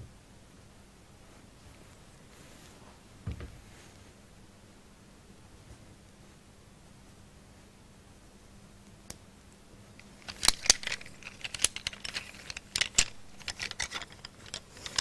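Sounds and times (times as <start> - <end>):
coloured pencils clicking together: 10.0 - 15.0.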